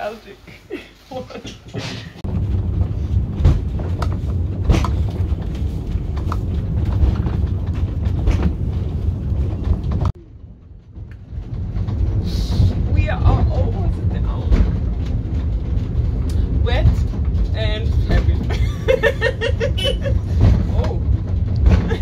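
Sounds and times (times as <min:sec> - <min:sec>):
funicular carriage rumbling: 0:00.0 - 0:22.0
wheels clacking on rails: 0:01.3 - 0:22.0.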